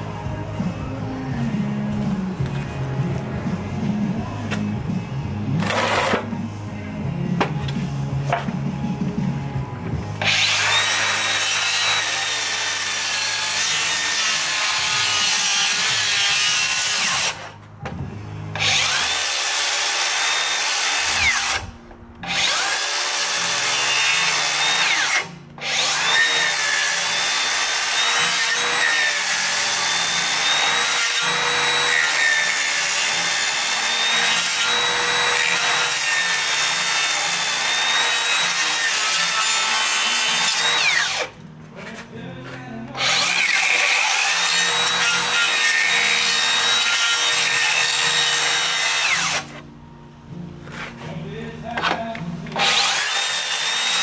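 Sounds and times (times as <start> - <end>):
circular saw cutting wood: 5.6 - 6.3, 10.2 - 17.6, 18.6 - 41.4, 43.0 - 49.6, 52.5 - 54.0.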